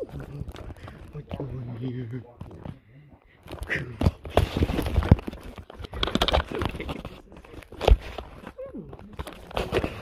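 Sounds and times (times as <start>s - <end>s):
crinkling handling noise on microphone: 0.0s - 10.0s.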